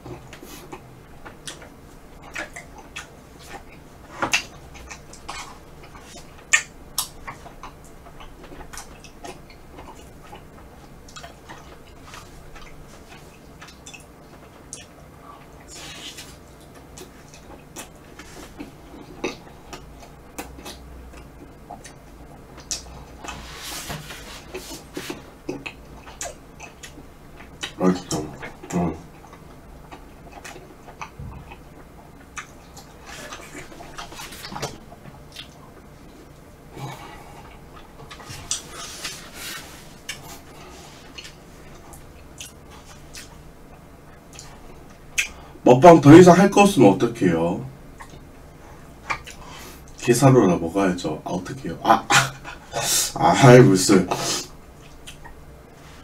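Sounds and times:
chewing ice cream: 0.0s - 23.6s, 24.4s - 45.4s, 48.0s - 50.1s
wet chewing mouth clicks: 0.2s - 15.0s, 40.0s - 45.4s, 54.8s - 55.4s
wet mouth clicks: 45.2s - 45.4s.

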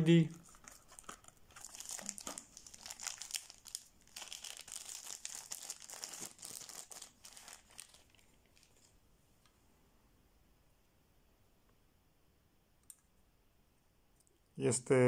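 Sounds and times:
plastic wrapping crinkling: 0.3s - 9.0s.

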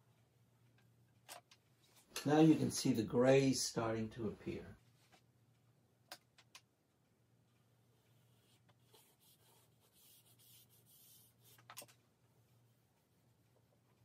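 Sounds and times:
charcoal scratching on paper: 8.2s - 11.8s.

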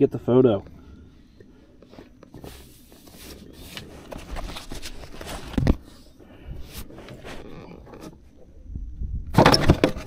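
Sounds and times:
faint rustling: 0.6s - 8.6s.

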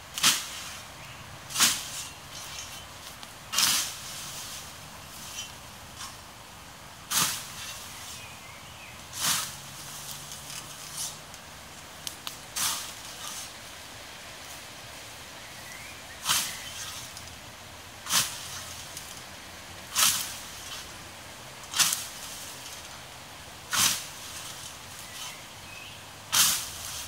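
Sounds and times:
scythe swishing through grass: 0.0s - 0.9s, 1.5s - 6.3s, 7.0s - 13.8s, 15.6s - 17.4s, 18.0s - 21.0s, 21.6s - 23.0s, 23.6s - 27.0s.

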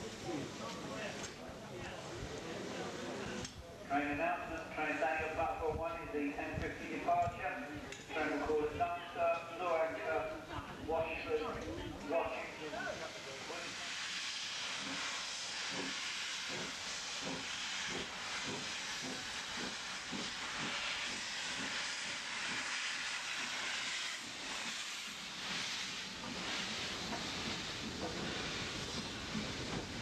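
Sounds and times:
steam hissing: 10.9s - 30.0s.

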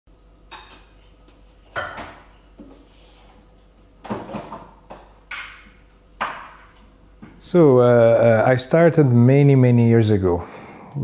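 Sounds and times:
dishes clinking: 1.8s - 2.3s.

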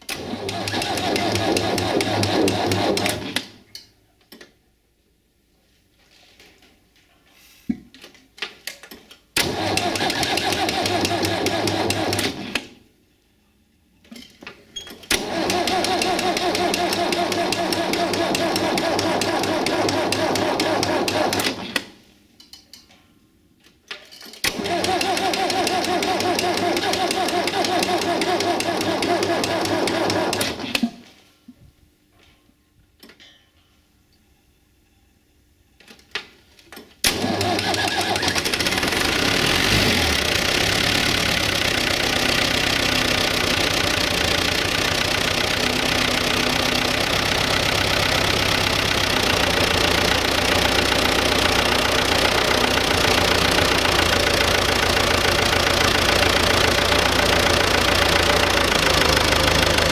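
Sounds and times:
starter cranking diesel engine: 0.1s - 3.5s, 9.4s - 12.6s, 15.1s - 21.6s, 24.5s - 30.8s, 37.1s - 59.9s.

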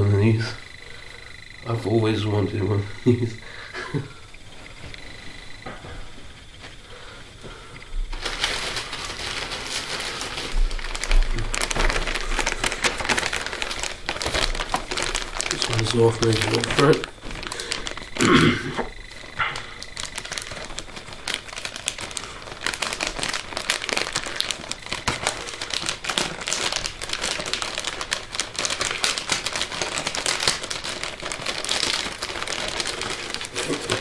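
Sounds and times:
wrapping paper tearing and crumpling: 8.1s - 34.0s.

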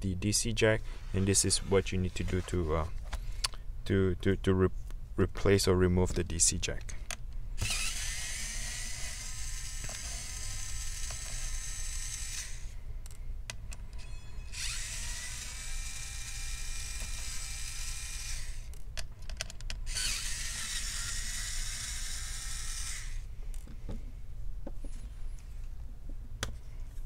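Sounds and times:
electric screwdriver whining: 7.6s - 12.8s, 14.5s - 18.7s, 19.9s - 23.3s.

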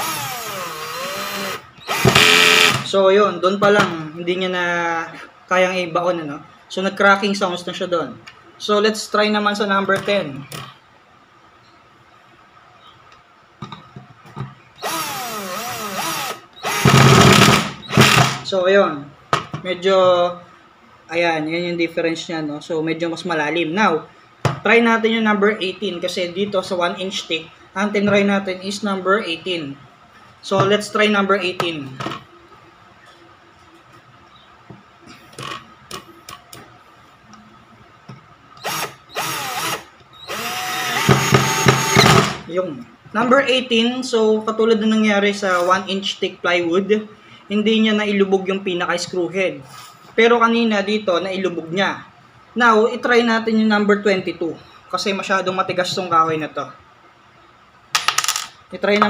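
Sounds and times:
cordless drill motor whine: 0.0s - 2.8s, 14.8s - 17.3s, 38.6s - 42.1s
drill clutch clattering: 0.0s - 2.8s, 38.6s - 42.3s.

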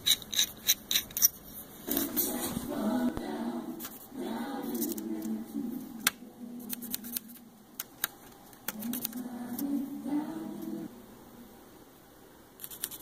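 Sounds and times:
person humming a tune: 8.7s - 11.0s.

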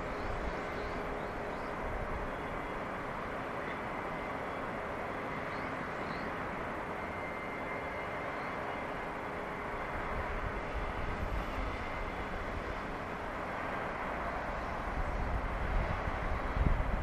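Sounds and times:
distant outdoor hum: 0.0s - 17.0s
faint steady tones: 0.0s - 17.0s
wind buffeting microphone: 14.7s - 17.0s.

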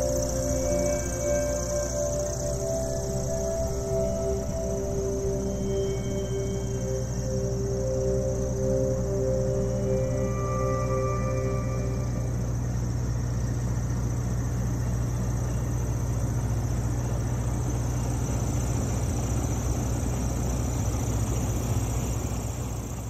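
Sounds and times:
boat motor humming: 0.0s - 23.0s.

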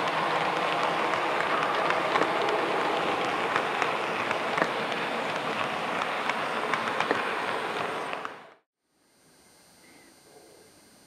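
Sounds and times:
light clicks of train wheels: 0.0s - 8.6s
model train rumbling on track: 0.0s - 8.6s.

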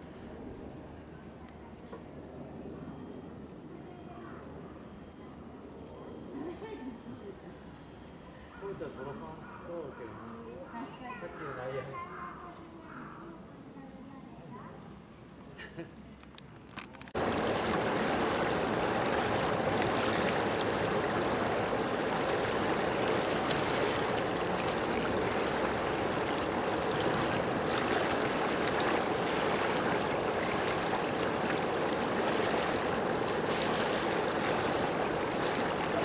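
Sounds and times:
running water rushing: 17.2s - 36.0s.

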